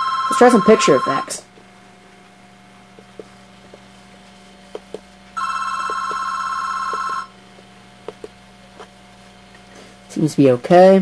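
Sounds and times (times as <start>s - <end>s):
telephone ringing: 0.0s - 1.5s, 5.4s - 7.4s.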